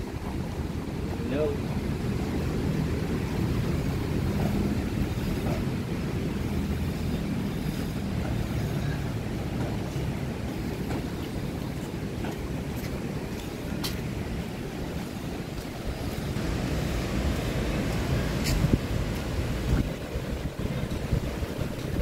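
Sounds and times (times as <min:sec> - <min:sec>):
ocean surf rumbling: 0:00.0 - 0:22.0
wind against microphone: 0:00.0 - 0:22.0.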